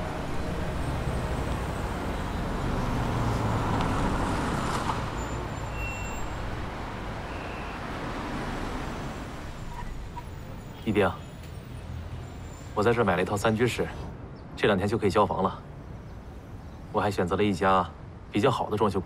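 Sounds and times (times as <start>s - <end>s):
car driving past: 0.0s - 10.6s
street traffic: 0.0s - 19.0s.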